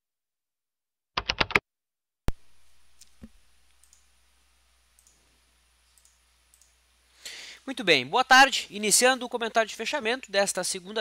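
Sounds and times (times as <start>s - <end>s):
room hiss and hum: 2.3s - 11.0s
computer mouse clicks: 2.9s - 4.1s, 5.0s - 5.2s, 5.9s - 6.8s.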